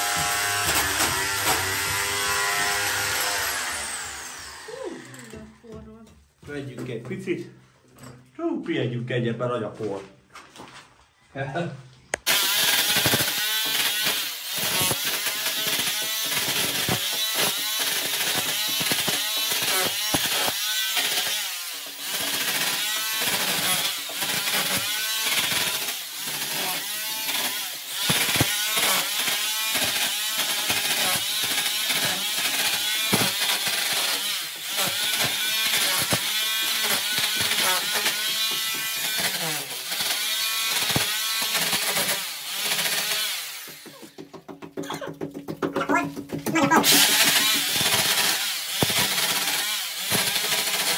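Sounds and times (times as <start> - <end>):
rotary hammer chiselling plaster: 12.2 - 50.9.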